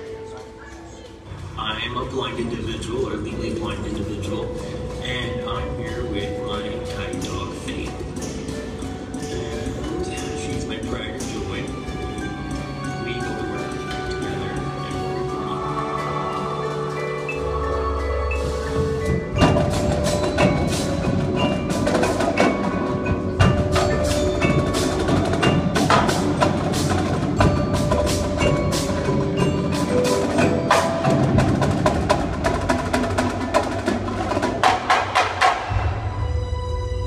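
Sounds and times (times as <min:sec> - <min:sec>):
marimbas and mallet keyboards: 0:00.0 - 0:37.0
marching drums: 0:01.3 - 0:36.5.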